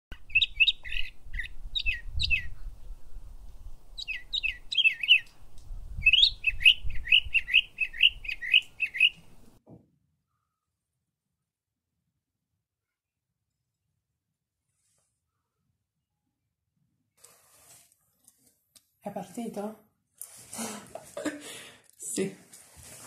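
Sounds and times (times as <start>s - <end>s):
small bird chirping: 0.2s - 2.7s, 3.9s - 5.4s, 6.0s - 9.3s.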